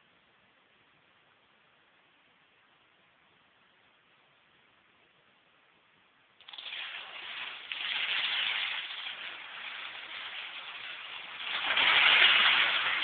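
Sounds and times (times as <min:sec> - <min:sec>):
plastic dominoes toppling: 0:06.4 - 0:13.0.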